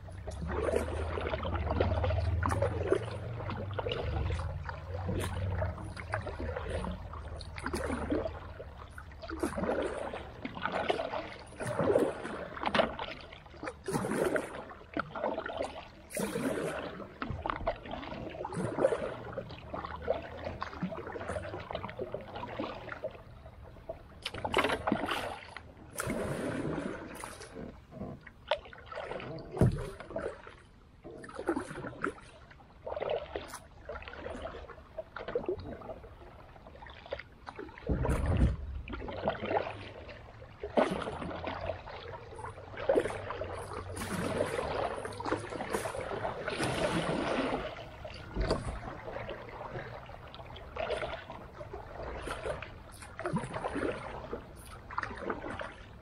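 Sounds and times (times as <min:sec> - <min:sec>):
creek water splashing: 0:00.0 - 0:56.0
heavy deep splash: 0:24.4 - 0:27.8, 0:37.7 - 0:55.8.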